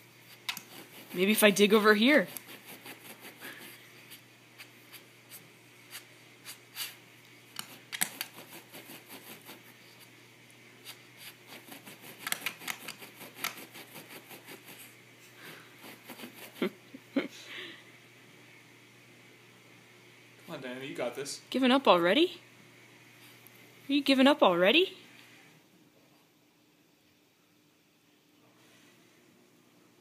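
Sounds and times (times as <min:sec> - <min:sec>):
dog nails scratching carpet: 0:00.2 - 0:10.2, 0:10.8 - 0:15.0, 0:15.8 - 0:16.8.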